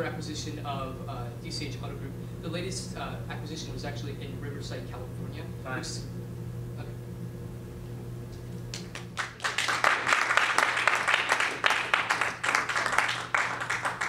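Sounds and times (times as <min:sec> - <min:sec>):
low room hum: 0:00.0 - 0:14.0
audience applauding: 0:08.7 - 0:14.0.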